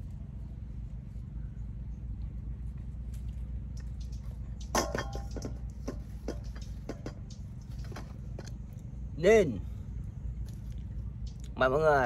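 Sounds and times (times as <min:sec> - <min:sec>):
steady low hum: 0:00.0 - 0:12.0
wet clicks and crackles of egg eating: 0:02.1 - 0:09.0, 0:10.3 - 0:11.6.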